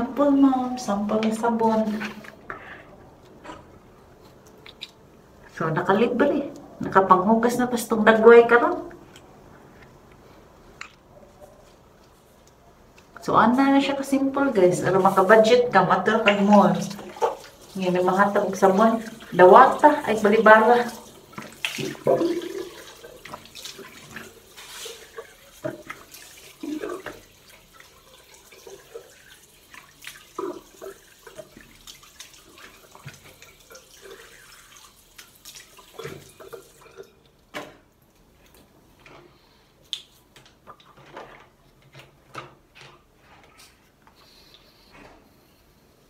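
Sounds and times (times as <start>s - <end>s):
water dripping: 4.4s - 5.6s, 14.0s - 38.2s
splashes of face rinsing: 16.2s - 37.1s
tap water running into sink: 16.2s - 37.2s.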